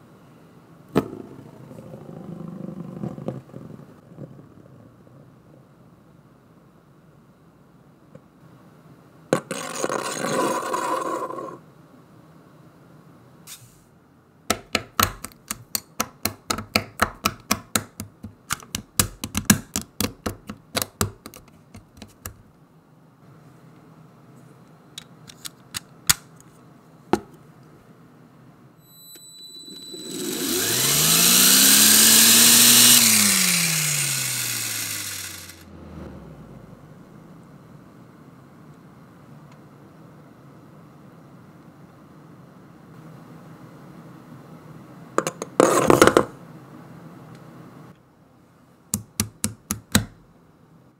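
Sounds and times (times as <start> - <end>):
toy motor whining: 29.6 - 35.6.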